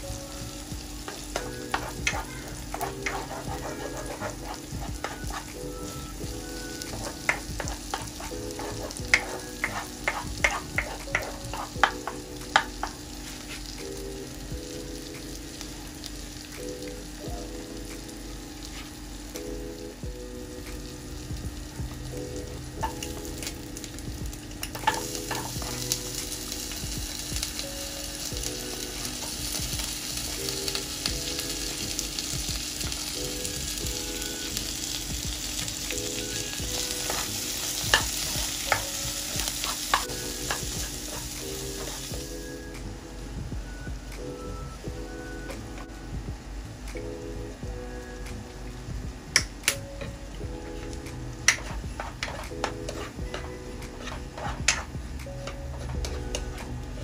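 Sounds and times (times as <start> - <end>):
food sizzling in a wok: 0.0 - 43.8, 50.6 - 56.5
utensil tapping a pan: 1.0 - 5.6, 6.3 - 13.1, 24.6 - 26.0, 51.5 - 56.5
plastic spatula scraping a pan: 1.7 - 5.7, 7.0 - 11.9.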